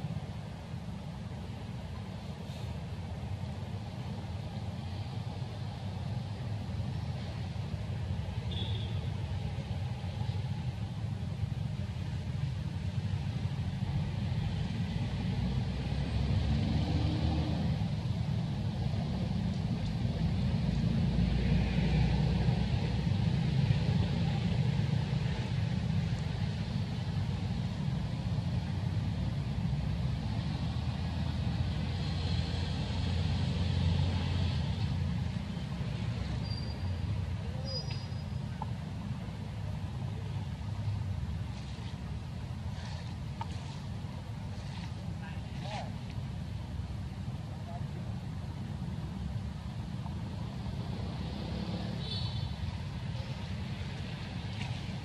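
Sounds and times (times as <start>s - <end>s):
faint hiss: 0.0s - 15.8s
low outdoor rumble: 0.0s - 55.0s.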